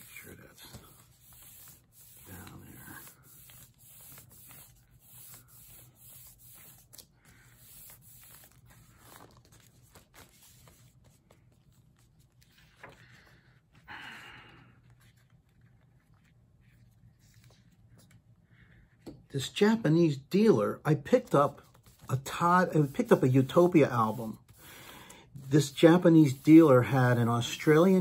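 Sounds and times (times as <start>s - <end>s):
paper sleeve rustling: 0.0s - 13.4s, 21.2s - 28.0s.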